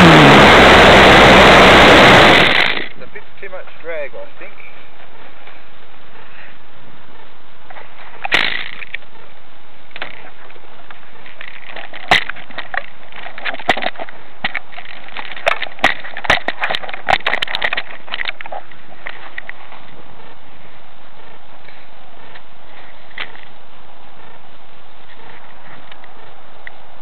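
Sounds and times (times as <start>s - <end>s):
sharp clicks and knocks: 9.9s - 19.6s.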